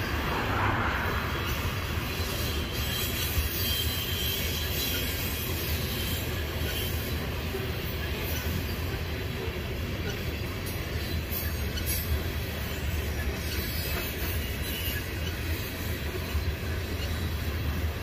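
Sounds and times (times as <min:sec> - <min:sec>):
train wheels rumbling on rail: 0:00.0 - 0:18.0
faint high wheel squeal: 0:01.4 - 0:18.0.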